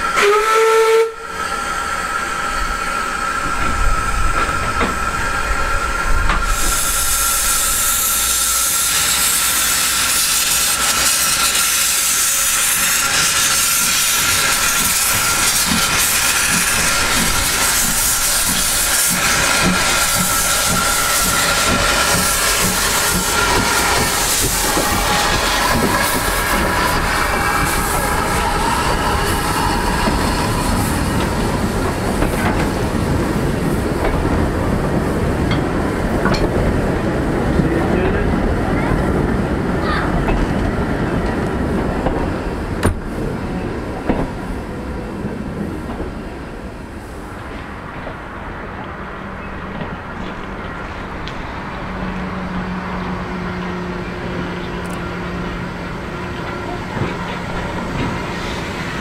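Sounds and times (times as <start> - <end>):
steam hissing from locomotive: 0.0 - 35.5
train coaches rumbling past: 0.0 - 59.0.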